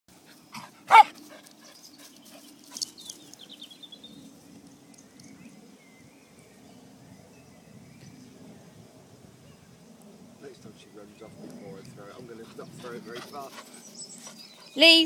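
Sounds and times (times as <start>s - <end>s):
dog barking: 0.9s - 1.2s.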